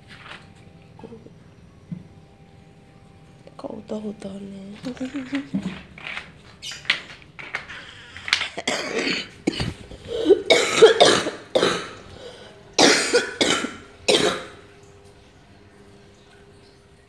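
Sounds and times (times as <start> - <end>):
person coughing harshly: 8.5 - 12.0, 12.8 - 14.6.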